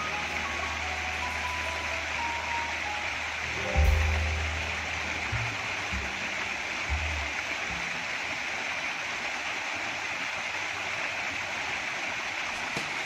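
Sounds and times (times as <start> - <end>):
faint background music: 0.0 - 8.3
water rushing down fountain: 0.0 - 13.0.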